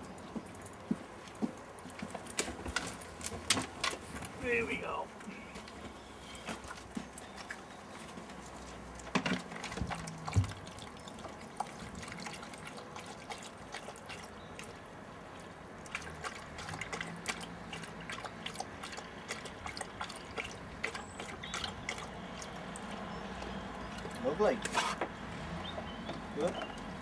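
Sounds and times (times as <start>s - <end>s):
dog lapping water: 8.4s - 25.0s.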